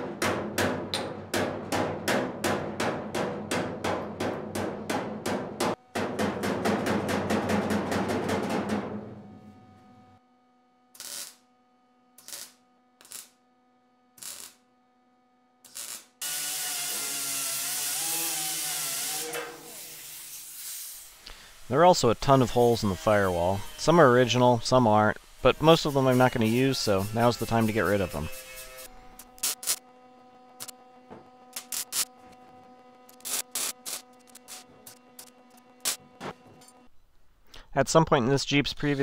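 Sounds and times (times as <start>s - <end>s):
hammer striking steel panel: 0.0s - 9.1s
welding tacks: 11.0s - 11.5s, 12.2s - 13.4s, 14.2s - 14.6s, 15.6s - 21.4s, 25.6s - 29.8s, 30.6s - 30.8s, 31.5s - 36.9s
angle grinder grinding: 25.4s - 29.8s, 31.4s - 36.9s.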